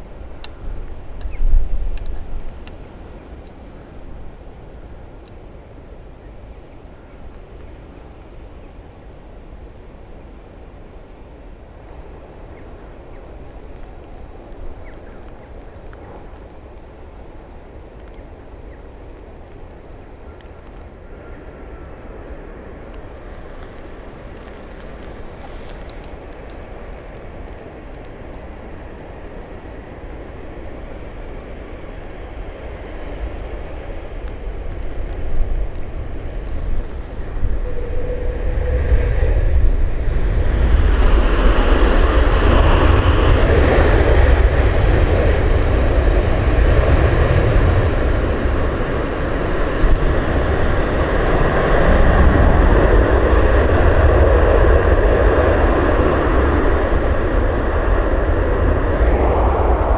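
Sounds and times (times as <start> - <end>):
jet engines roaring: 18.0 - 59.9.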